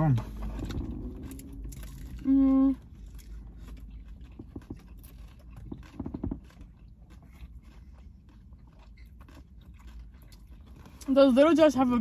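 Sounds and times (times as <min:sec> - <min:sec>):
car cabin rumble: 0:00.0 - 0:06.8
chewing and crunching chips: 0:00.0 - 0:12.0.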